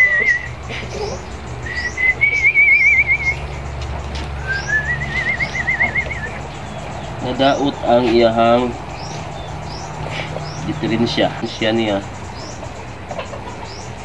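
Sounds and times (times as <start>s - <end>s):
person whistling trilled notes: 0.0s - 0.6s, 1.6s - 3.5s, 4.4s - 6.4s
small birds chirping: 0.0s - 14.0s.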